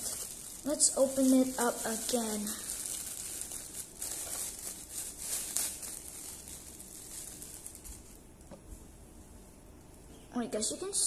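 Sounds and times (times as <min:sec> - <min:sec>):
plastic wrapping crinkling: 0:00.0 - 0:08.6.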